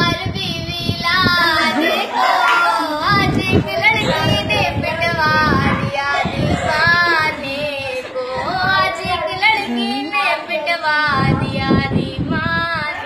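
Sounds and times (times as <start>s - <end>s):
girl singing unaccompanied: 0.0s - 13.0s.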